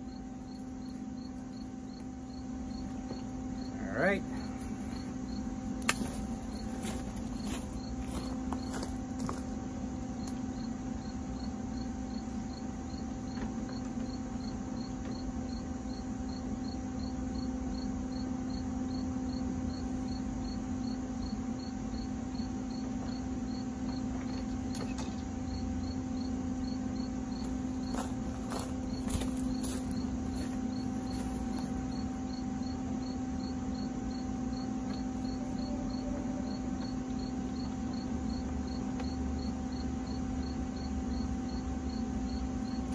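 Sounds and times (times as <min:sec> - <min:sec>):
low hum: 0:00.0 - 0:14.5, 0:23.8 - 0:42.9
cricket chirping: 0:00.0 - 0:42.9.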